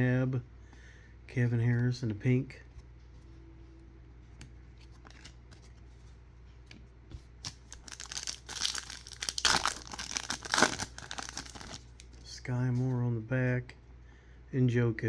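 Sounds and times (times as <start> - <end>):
card pack wrapper tearing: 7.4 - 12.1.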